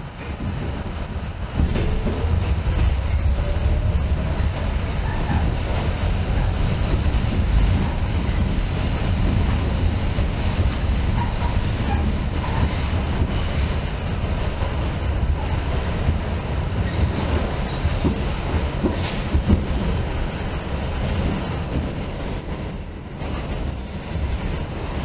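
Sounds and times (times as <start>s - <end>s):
subway train rumbling on track: 0.0s - 25.0s.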